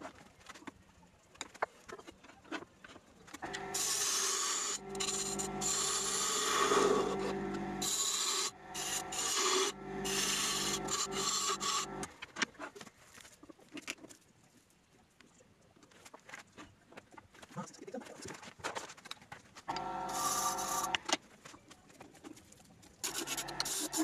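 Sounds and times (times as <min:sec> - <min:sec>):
lathe motor hum: 0:03.4 - 0:12.1, 0:19.7 - 0:21.1, 0:23.0 - 0:24.0
turning tool cutting wood: 0:03.4 - 0:12.1, 0:19.7 - 0:21.2, 0:23.0 - 0:24.0.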